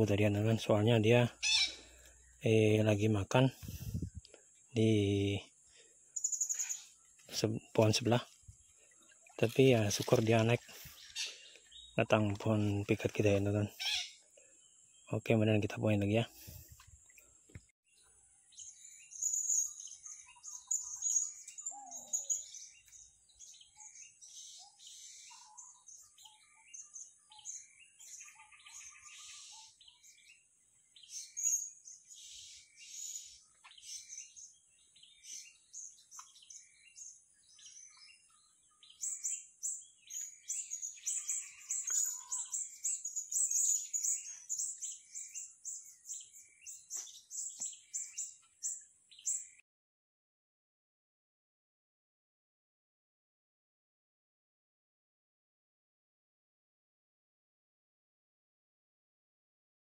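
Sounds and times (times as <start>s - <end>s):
parrots chirping: 1.4s - 1.8s, 13.8s - 14.2s.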